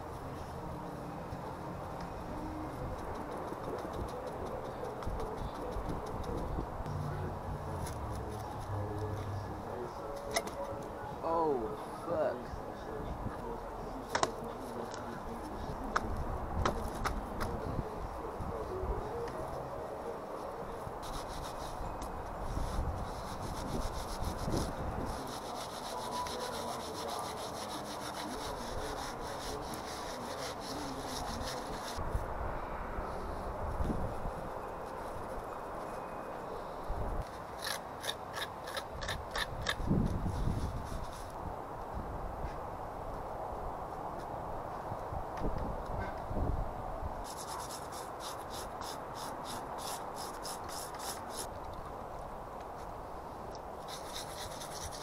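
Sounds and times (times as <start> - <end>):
gritty rubbing and scraping of cement: 2.5 - 10.9, 20.8 - 32.0, 37.2 - 41.4, 47.2 - 51.5, 53.8 - 55.0
trowel scraping wet cement: 23.1 - 32.0, 37.3 - 39.8.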